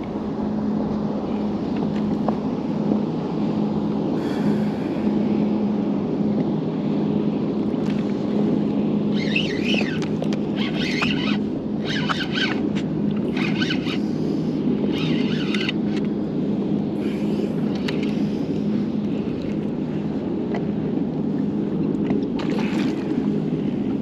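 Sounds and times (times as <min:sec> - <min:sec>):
low motor rumble: 0:00.0 - 0:24.0
high wavering squeals: 0:09.1 - 0:12.6, 0:13.2 - 0:14.1, 0:14.9 - 0:15.8.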